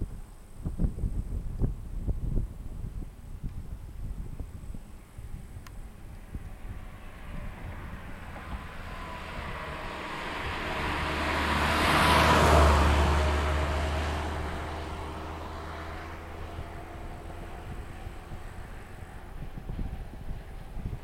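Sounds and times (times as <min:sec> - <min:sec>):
vehicle passing by: 0:05.8 - 0:21.0.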